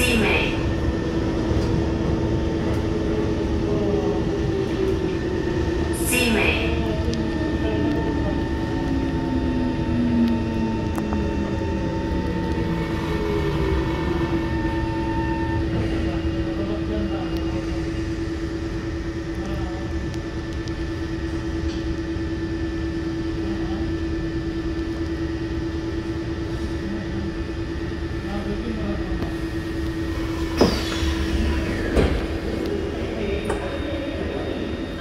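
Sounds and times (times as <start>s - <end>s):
train motor whine: 0.0s - 16.6s, 29.2s - 35.0s
low rumble: 0.0s - 35.0s.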